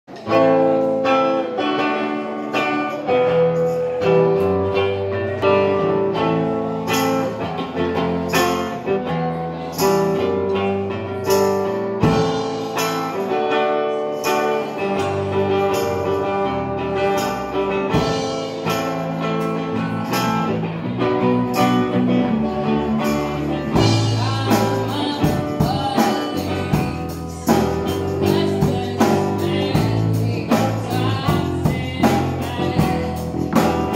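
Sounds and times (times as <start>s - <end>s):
live blues band: 0.1s - 33.9s
woman singing: 23.2s - 33.9s.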